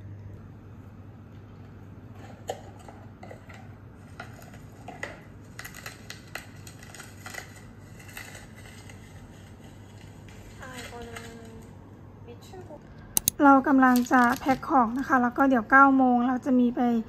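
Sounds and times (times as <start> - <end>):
low steady hum: 0.0 - 4.7.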